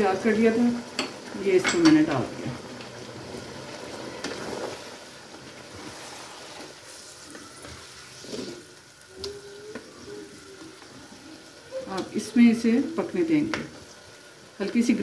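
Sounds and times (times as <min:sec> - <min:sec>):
gravy sizzling and bubbling: 0:00.0 - 0:15.0.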